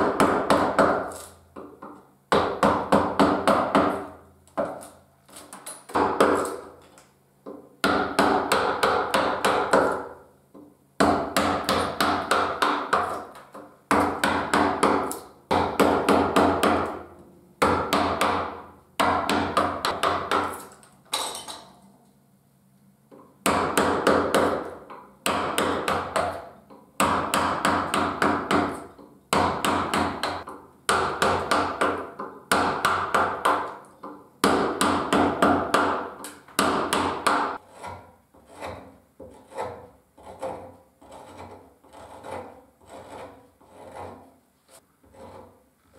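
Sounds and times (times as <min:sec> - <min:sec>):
wooden mallet striking gouge: 0:05.9 - 0:06.8, 0:07.5 - 0:17.0, 0:17.6 - 0:20.6, 0:23.4 - 0:44.2.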